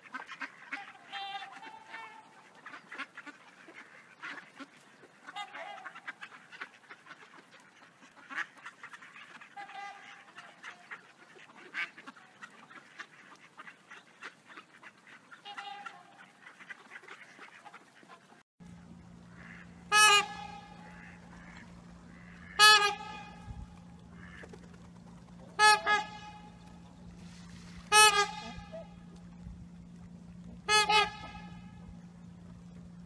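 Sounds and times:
geese honking: 0.0 - 7.4, 8.1 - 33.0
ducks quacking: 0.0 - 33.0
steady hum: 18.6 - 33.0.

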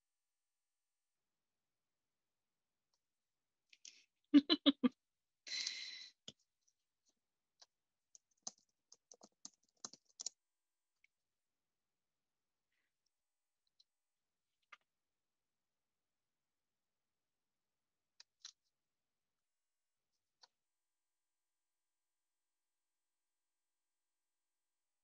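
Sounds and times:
keyboard and mouse clicks: 7.6 - 10.4.

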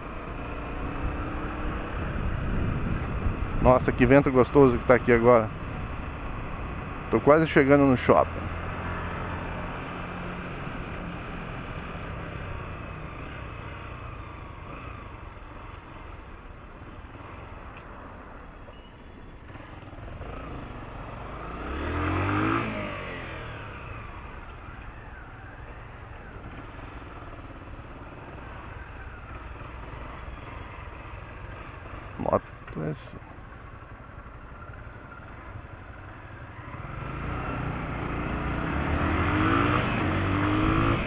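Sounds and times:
wind and road noise: 0.0 - 41.0
vehicle passing by: 20.2 - 24.2, 36.7 - 41.0.

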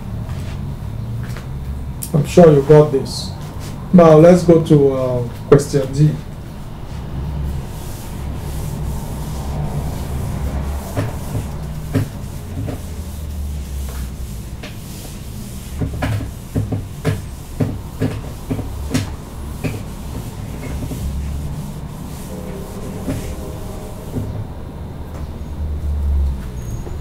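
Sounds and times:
steady low hum: 0.0 - 26.4
eraser wiping a whiteboard: 6.9 - 24.4.

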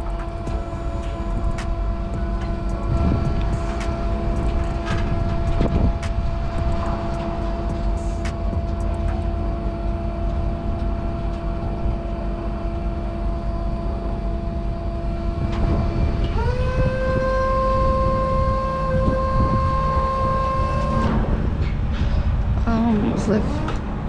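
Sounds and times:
hydraulic system whine: 0.0 - 24.0
low rumble: 0.0 - 24.0.

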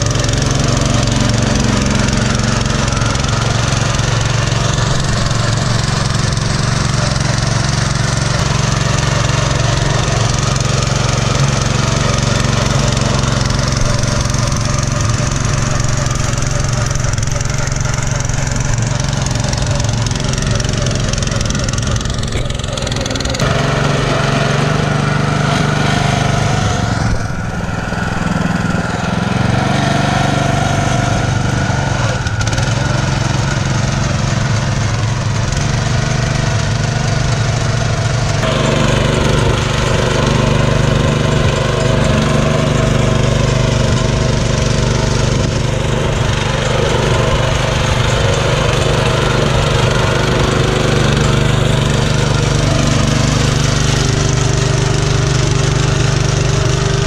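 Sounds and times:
cultivator engine running: 0.0 - 57.0
rotor churning soil: 0.0 - 57.0.

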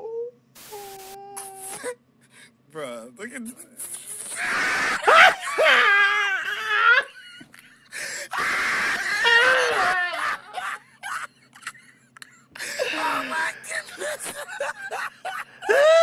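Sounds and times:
man laughing loudly: 4.4 - 16.0
breaths and chuckles: 7.1 - 8.3, 10.6 - 16.0.

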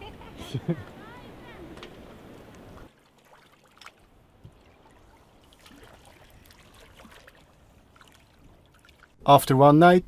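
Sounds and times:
sea water lapping and splashing: 1.1 - 9.2
water drips: 2.5 - 9.2.

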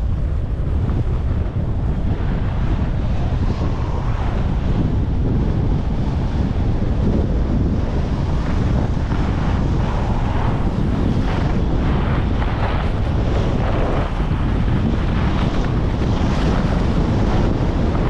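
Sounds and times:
wind buffeting microphone: 0.0 - 18.0
skis scraping on snow: 7.3 - 18.0.

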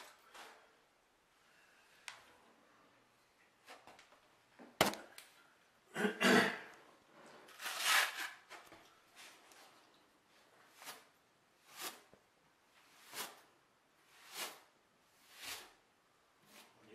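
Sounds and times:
trowels scraping and clacking: 7.5 - 8.6.

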